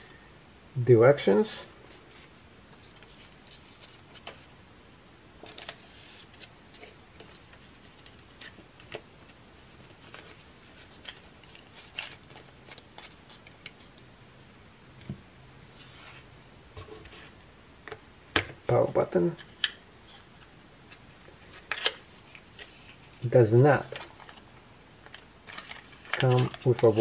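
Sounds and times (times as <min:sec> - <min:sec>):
paper card rustling: 0:05.4 - 0:14.0, 0:23.8 - 0:27.0.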